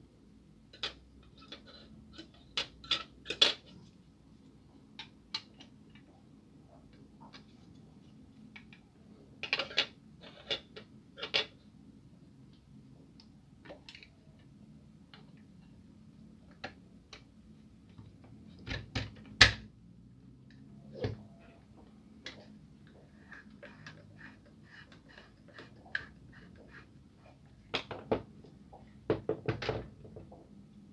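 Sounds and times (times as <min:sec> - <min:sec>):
plastic parts clicking and knocking: 0:00.7 - 0:03.8, 0:04.9 - 0:06.1, 0:08.4 - 0:11.6, 0:16.4 - 0:19.7, 0:27.6 - 0:30.6.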